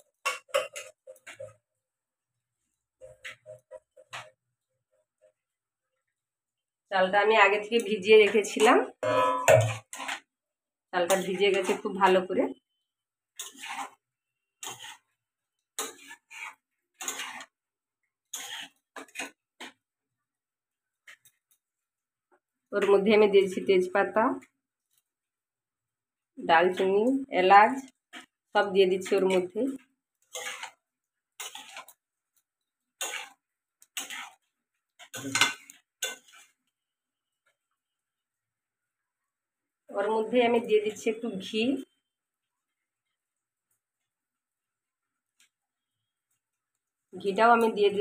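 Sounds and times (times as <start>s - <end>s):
metal spatula scraping pan: 0.0s - 1.6s, 3.0s - 4.4s, 7.4s - 10.4s, 11.0s - 19.8s, 21.0s - 21.5s, 27.6s - 36.8s.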